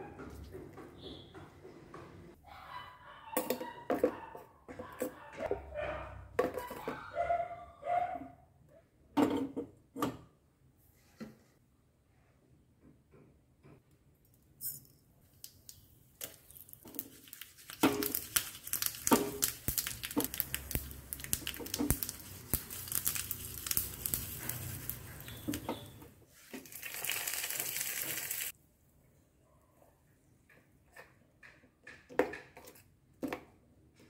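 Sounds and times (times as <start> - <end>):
seeds popping in hot oil: 15.4 - 26.0, 26.6 - 28.5
oil sizzling: 15.4 - 28.6.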